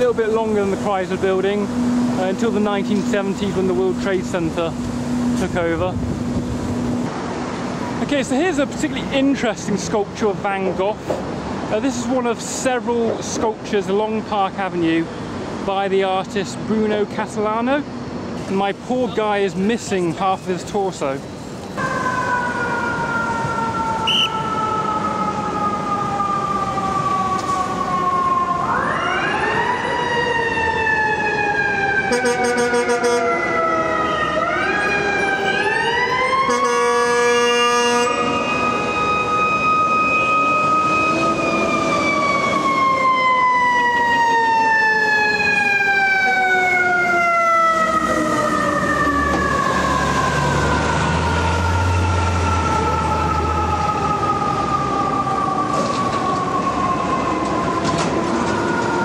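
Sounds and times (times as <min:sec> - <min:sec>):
fire truck siren wailing: 0:00.0 - 0:09.3, 0:21.6 - 0:59.0
horn blasts: 0:32.1 - 0:33.3, 0:36.5 - 0:38.3.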